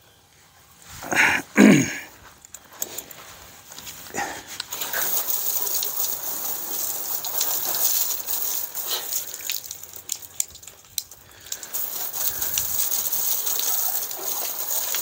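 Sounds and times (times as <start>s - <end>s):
hose spraying water on siding: 3.6s - 15.0s
water dripping: 4.6s - 15.0s.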